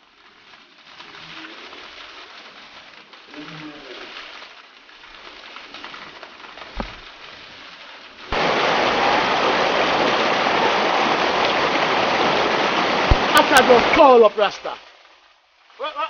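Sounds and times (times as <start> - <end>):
faint even hiss: 0.0 - 9.2
rushing river water: 0.0 - 16.0.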